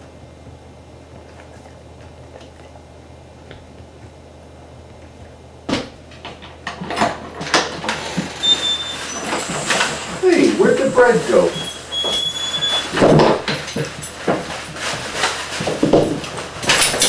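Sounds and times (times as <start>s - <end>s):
clattering knocks: 5.8s - 17.0s.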